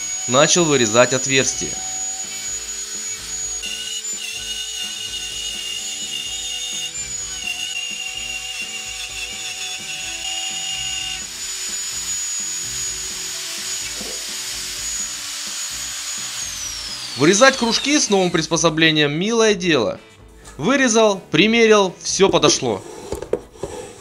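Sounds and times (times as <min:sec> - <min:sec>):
router whining cutting plywood: 0:00.0 - 0:18.7.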